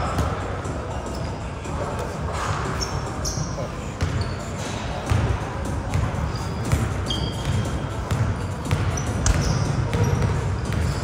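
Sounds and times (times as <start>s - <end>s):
sneakers squeaking on floor: 1.0s - 5.3s, 5.9s - 11.0s
basketball bouncing on court: 4.0s - 4.3s, 5.1s - 11.0s.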